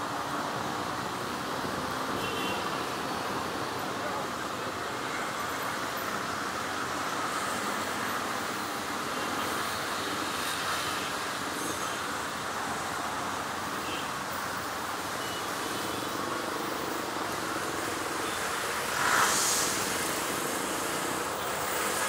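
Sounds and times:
train hiss burst: 0:18.5 - 0:22.0.

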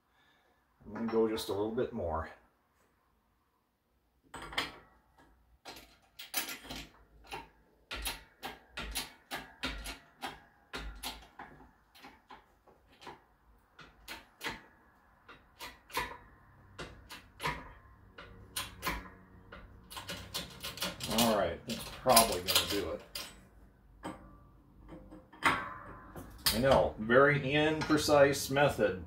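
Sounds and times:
shop press clicks and knocks: 0:04.3 - 0:23.4.

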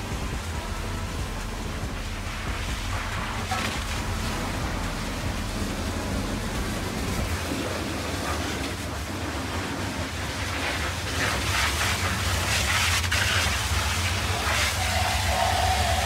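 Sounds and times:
steady low hum: 0:00.0 - 0:12.8.

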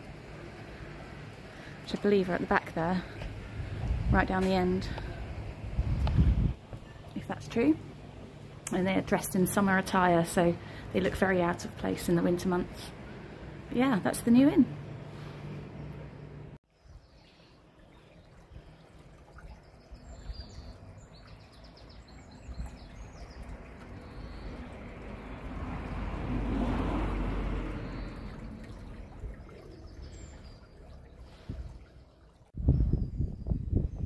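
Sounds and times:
small birds chirping: 0:15.2 - 0:25.6, 0:27.7 - 0:34.0
stream water rushing: 0:17.6 - 0:32.5.

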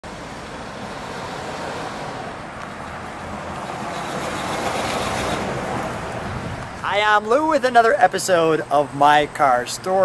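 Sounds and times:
car engine driving past: 0:00.8 - 0:06.8.

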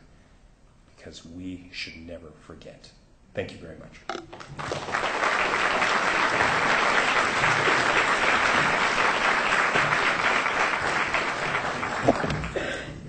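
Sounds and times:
audience applauding: 0:04.3 - 0:12.8.

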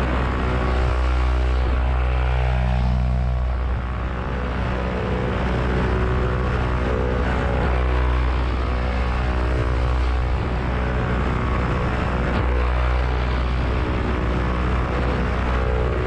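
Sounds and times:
paramotor engine droning: 0:00.0 - 0:16.0.

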